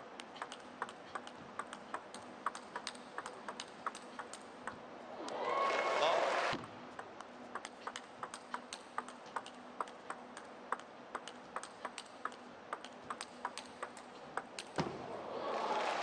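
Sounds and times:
table tennis ball clicking: 0.2 - 4.8, 6.9 - 14.8.

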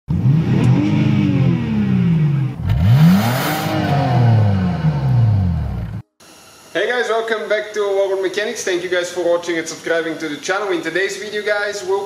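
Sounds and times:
car engine revving: 0.1 - 6.0.

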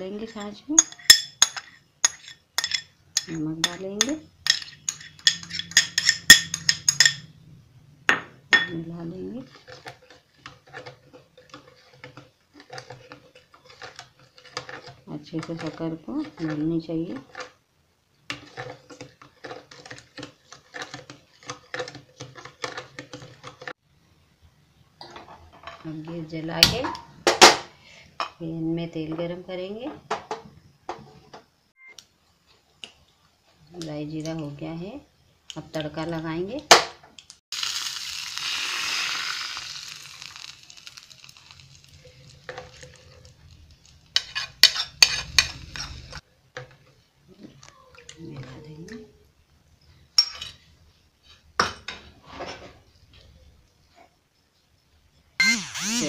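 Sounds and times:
spoon stirring in a plastic bowl: 0.0 - 7.2, 8.6 - 17.6, 18.2 - 23.7
spoon clinking against bowl: 0.3 - 7.3
hot oil sizzling: 37.5 - 46.2.

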